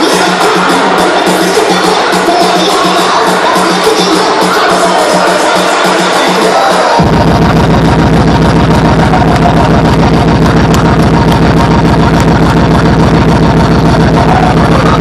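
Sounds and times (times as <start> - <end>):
distorted buzzing drone: 0.0 - 15.0
loud dance music with pulsing bass: 0.0 - 15.0.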